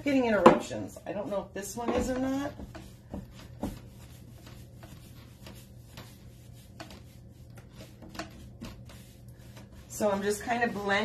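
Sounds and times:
steady low hum: 0.0 - 11.0
paintbrush scraping on wood: 0.1 - 11.0
brush tapping wood: 0.3 - 11.0.

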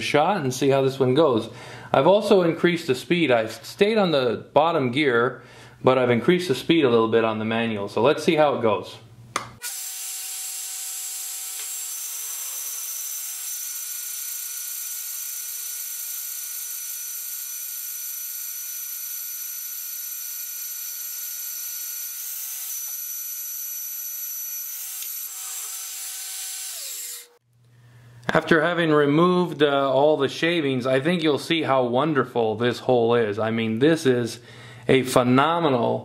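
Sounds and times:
magnetic drill whining: 9.6 - 27.4.

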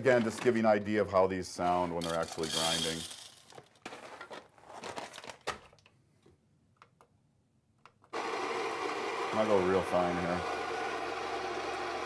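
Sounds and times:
coffee beans rattling: 2.0 - 3.6
foil bag crinkling: 2.1 - 5.8
coffee grinder motor grinding: 8.2 - 12.0.

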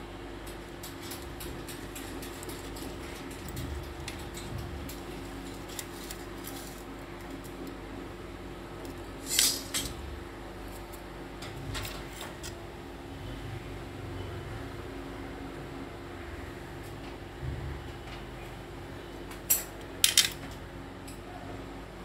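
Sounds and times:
metal drawer channel clicking and rattling: 0.5 - 6.7.

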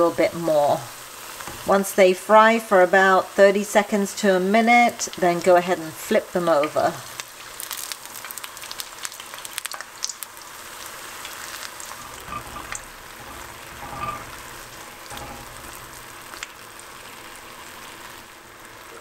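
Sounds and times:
dough frying in hot oil: 0.0 - 19.0.

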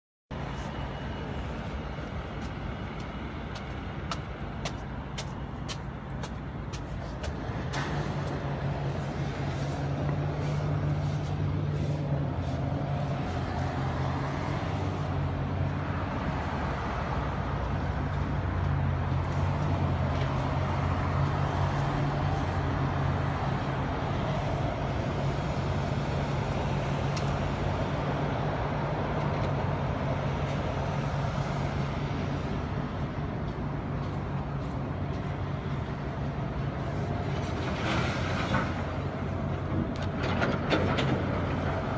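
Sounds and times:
urban street noise: 0.3 - 41.9
heavy vehicle engine idling: 0.4 - 16.4.

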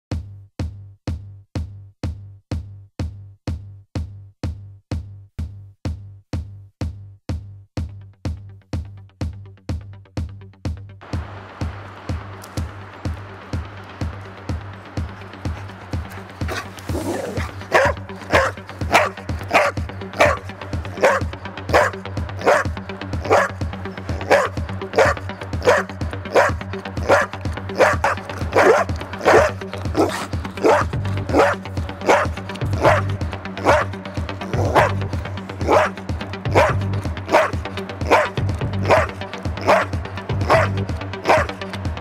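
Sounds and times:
background music: 5.9 - 42.0
dog barking: 16.5 - 33.9, 34.5 - 35.0, 35.6 - 41.6.

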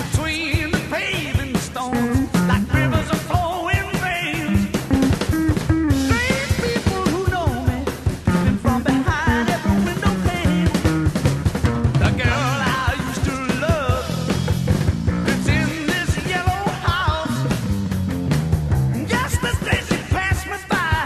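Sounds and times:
person singing: 0.0 - 4.9, 6.0 - 11.0, 12.0 - 14.5, 15.3 - 17.6, 19.0 - 21.0
drum beat: 0.0 - 21.0
guitar: 0.0 - 21.0
rock song: 0.0 - 21.0.

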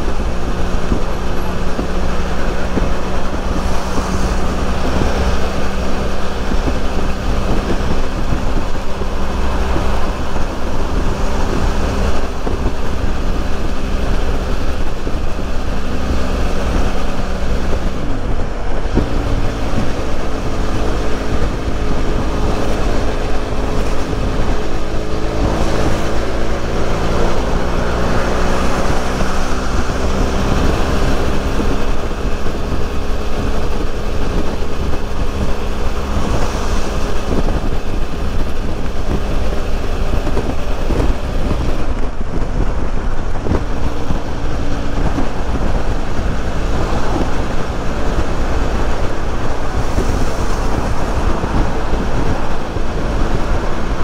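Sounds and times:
motorcycle engine running: 0.0 - 54.0
wind rumble on microphone: 0.0 - 54.0.

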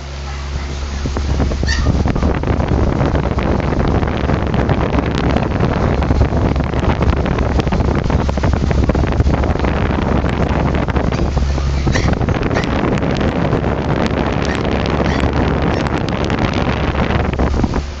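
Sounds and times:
fan wind buffeting microphone: 0.0 - 18.0.

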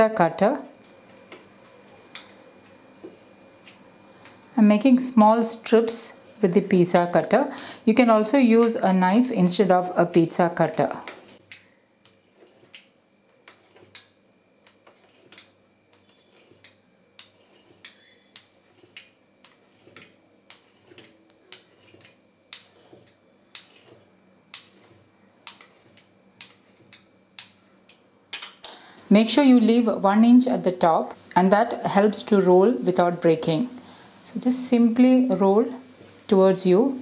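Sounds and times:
pizza cutter clicking through dough: 11.5 - 27.6.

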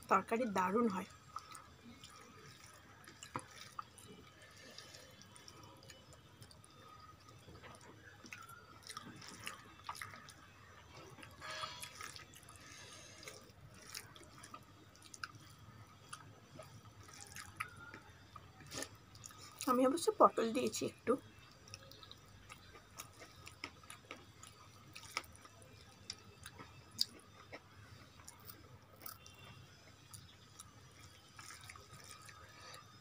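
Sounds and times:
fingers mixing rice wet squishing: 1.2 - 19.7.

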